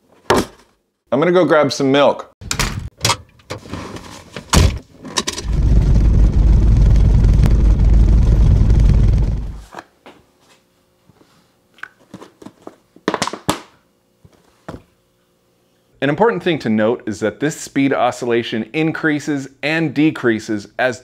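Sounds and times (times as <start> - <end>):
heavy rumbling car shudder: 5.4 - 9.6.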